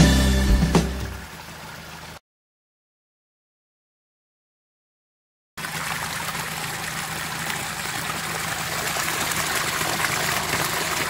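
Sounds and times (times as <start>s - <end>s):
stream water splashing over rock: 0.8s - 2.2s, 5.6s - 11.0s.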